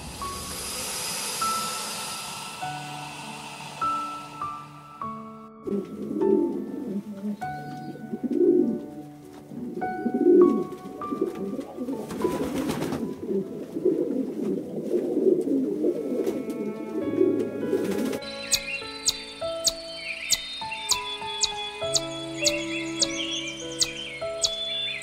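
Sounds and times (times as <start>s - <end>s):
soft background music: 0.0s - 25.0s
pigeon cooing: 9.6s - 23.2s.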